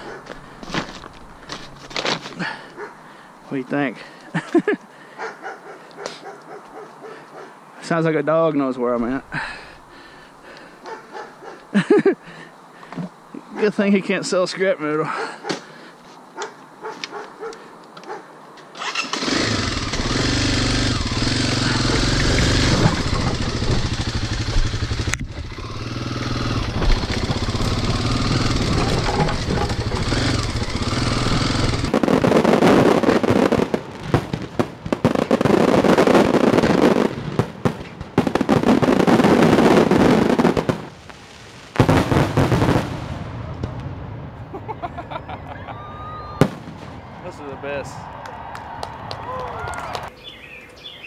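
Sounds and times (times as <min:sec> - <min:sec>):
dirt bike engine running: 0:19.2 - 0:31.9
fireworks bangs and crackles: 0:20.7 - 0:44.5, 0:46.3 - 0:47.8.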